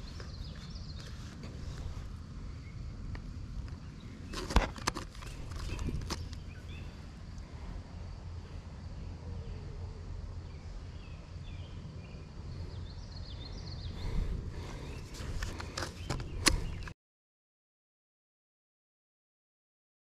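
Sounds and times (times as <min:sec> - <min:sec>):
wind rumble on microphone: 0:00.0 - 0:07.0, 0:07.9 - 0:16.9
microphone handling clicks: 0:04.3 - 0:06.4, 0:15.1 - 0:16.9
faint bird chirps: 0:05.2 - 0:07.1, 0:08.3 - 0:15.2.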